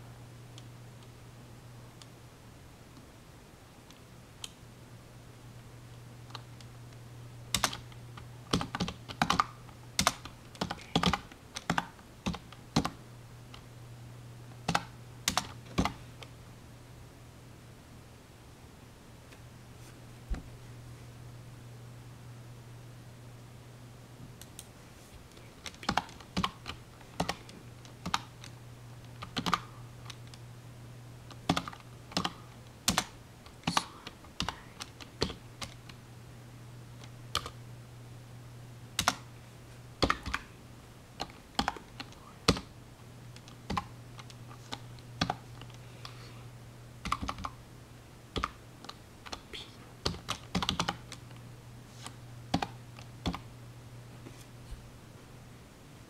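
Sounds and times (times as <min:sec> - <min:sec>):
steady low hum: 0:00.0 - 0:56.0
keyboard typing: 0:07.5 - 0:13.6, 0:14.6 - 0:16.3, 0:25.3 - 0:30.4, 0:31.3 - 0:36.0, 0:37.0 - 0:37.6, 0:39.0 - 0:39.3, 0:40.0 - 0:40.5, 0:41.2 - 0:42.7, 0:43.4 - 0:45.8, 0:47.0 - 0:47.6, 0:48.3 - 0:49.4, 0:50.0 - 0:51.4, 0:52.0 - 0:53.4.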